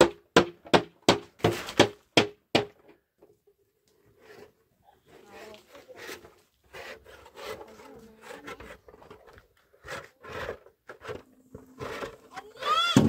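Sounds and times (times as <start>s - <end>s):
trowel scraping wet plaster: 4.1s - 12.9s.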